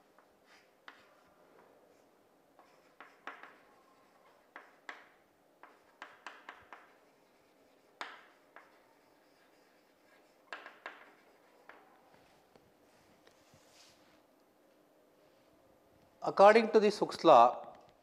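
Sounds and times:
chalk tapping on blackboard: 0:00.5 - 0:01.7, 0:02.6 - 0:12.0.

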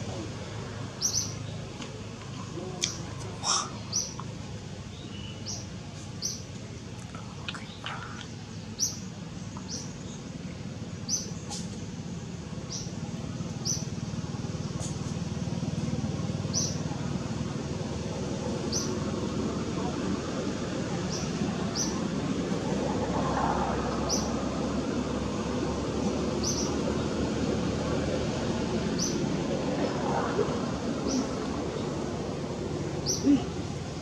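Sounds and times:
low outdoor hum: 0:00.0 - 0:34.0
bird chirping: 0:01.0 - 0:01.6, 0:04.9 - 0:06.4, 0:33.0 - 0:33.4.

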